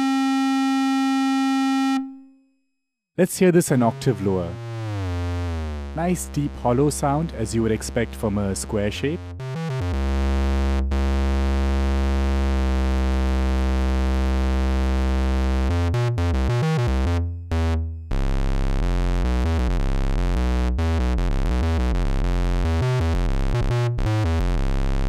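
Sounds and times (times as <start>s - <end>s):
buzzy square-wave synth tone: 3.4s - 25.0s.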